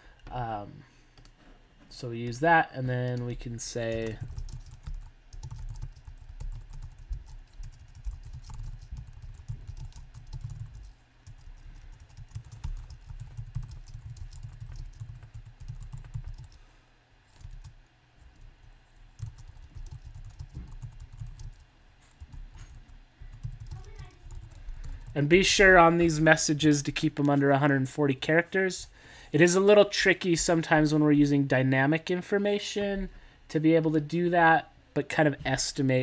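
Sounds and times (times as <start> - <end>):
keyboard typing clicks: 19.2 - 21.6.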